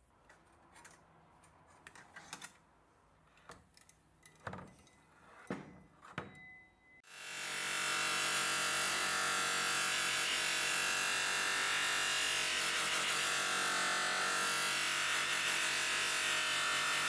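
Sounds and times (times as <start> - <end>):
bench polisher motor whir: 7.1 - 17.0.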